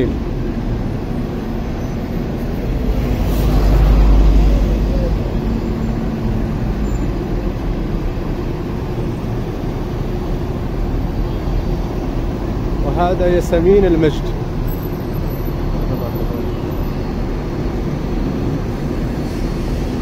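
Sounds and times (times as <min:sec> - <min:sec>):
road traffic rumble: 0:00.0 - 0:20.0
vehicle passing close: 0:01.0 - 0:10.9.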